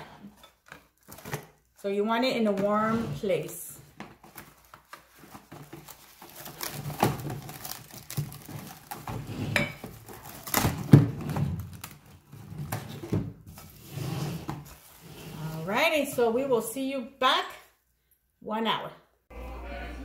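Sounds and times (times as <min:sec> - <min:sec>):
plastic cling wrap crinkling: 0:04.2 - 0:09.3.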